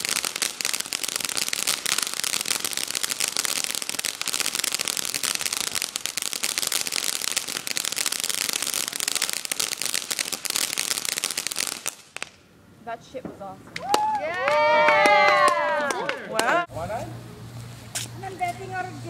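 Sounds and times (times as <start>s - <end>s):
firework hiss: 0.0s - 12.4s
firework crackling: 0.0s - 12.5s.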